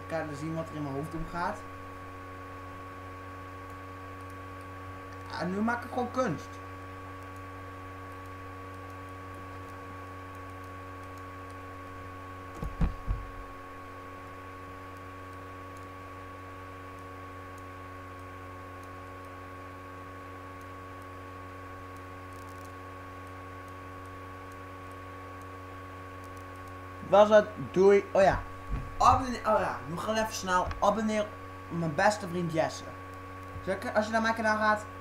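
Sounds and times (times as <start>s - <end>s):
electrical hum: 0.0s - 35.0s
low thumps: 12.5s - 13.6s, 28.2s - 31.0s.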